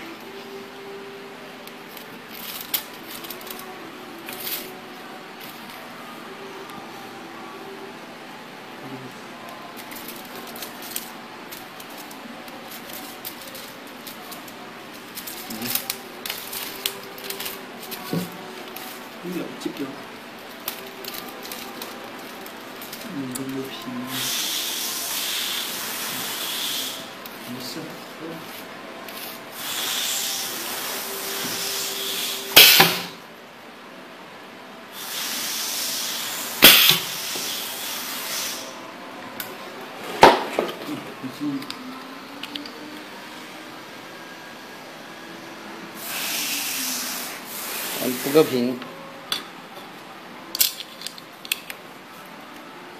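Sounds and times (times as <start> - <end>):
steady background hiss: 0.0 - 52.9
machine clicks and crinkles: 9.8 - 19.0, 20.5 - 23.6
compressed air hissing: 24.1 - 27.2, 29.5 - 33.2, 34.9 - 38.8, 45.9 - 48.6.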